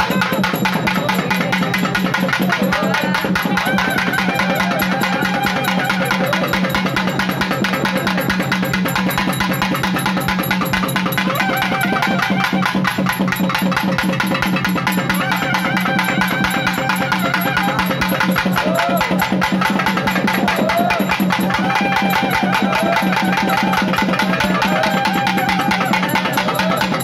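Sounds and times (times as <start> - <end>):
wavering melody line: 0.0 - 8.4, 9.0 - 13.6, 14.8 - 27.0
fast festival drumming: 0.0 - 27.0.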